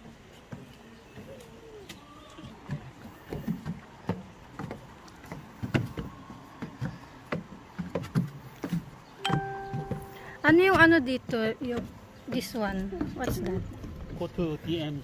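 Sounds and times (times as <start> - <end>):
footsteps on steel stairs: 2.5 - 13.7.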